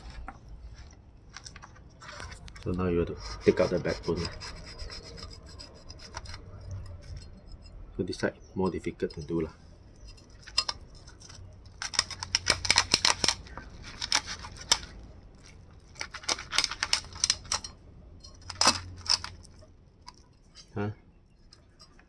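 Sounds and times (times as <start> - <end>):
cleaver cutting through fish bones: 10.4 - 17.7, 18.4 - 20.2.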